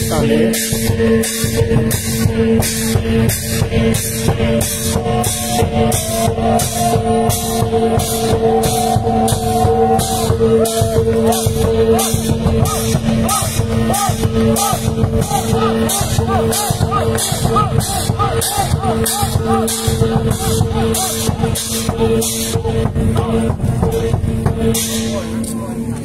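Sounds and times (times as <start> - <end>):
cymbals clashing: 0.0 - 25.9
drumbeats: 0.0 - 26.0
steady held drone: 0.0 - 26.0
wavering melody line: 4.2 - 22.7.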